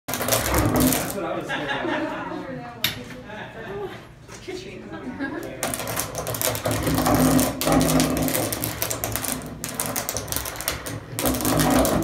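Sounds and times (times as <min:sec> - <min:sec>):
grinder grinding metal: 0:00.1 - 0:01.2, 0:05.6 - 0:12.0
steady hum: 0:00.1 - 0:12.0.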